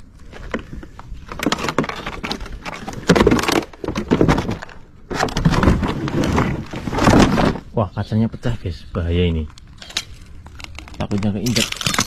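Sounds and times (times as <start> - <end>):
cardboard and plywood being shifted: 0.2 - 7.8.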